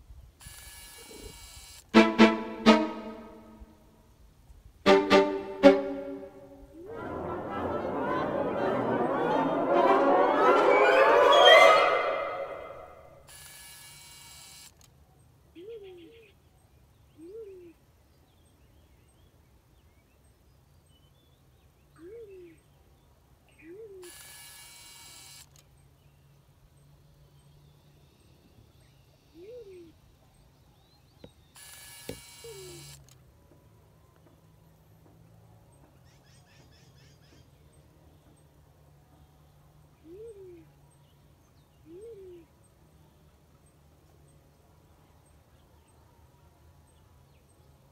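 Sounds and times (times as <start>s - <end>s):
soft hiss-like noise: 0.0s - 2.0s
small birds chirping: 25.6s - 33.0s.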